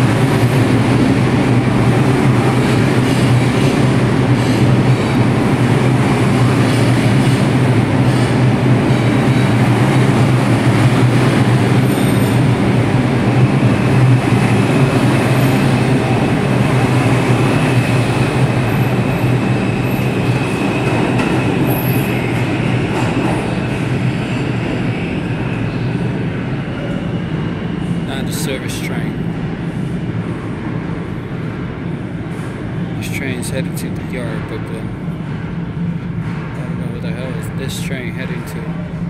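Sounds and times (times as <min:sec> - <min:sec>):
subway train rumbling past: 0:00.0 - 0:39.0
high wheel squeal: 0:11.8 - 0:12.5, 0:18.8 - 0:22.4.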